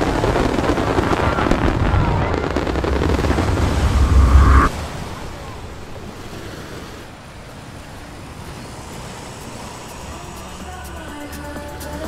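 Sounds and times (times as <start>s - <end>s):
fireworks rumble: 0.0s - 5.0s
ocean surf: 0.0s - 12.0s
wind: 0.0s - 12.0s.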